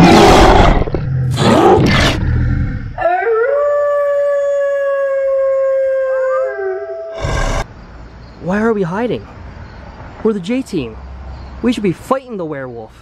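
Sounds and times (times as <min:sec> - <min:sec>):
rough growling roar: 0:00.0 - 0:03.1, 0:07.1 - 0:07.7
wolf-like howl: 0:03.0 - 0:07.7.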